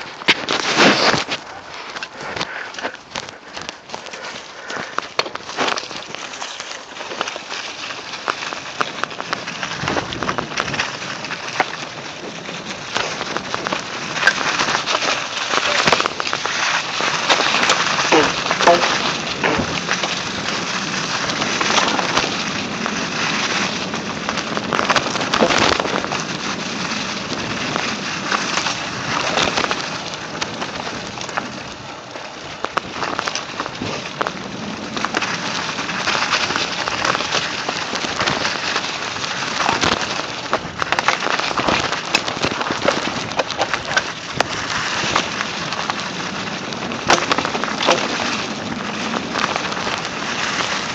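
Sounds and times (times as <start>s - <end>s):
bike tyres rolling over dry leaves: 0.0s - 50.9s
bike knocking over bumps: 32.6s - 50.9s.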